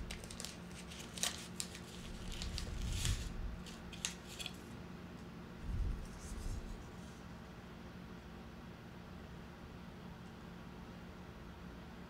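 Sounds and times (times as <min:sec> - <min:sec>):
tea bag wrapper crinkling: 0:00.0 - 0:04.7.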